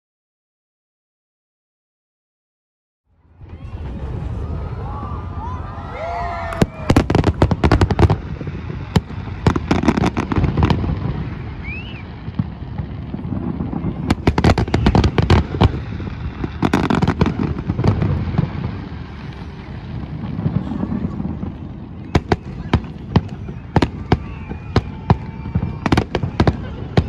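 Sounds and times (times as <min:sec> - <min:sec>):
low rumble: 0:03.2 - 0:08.6
fireworks bangs: 0:03.2 - 0:27.0.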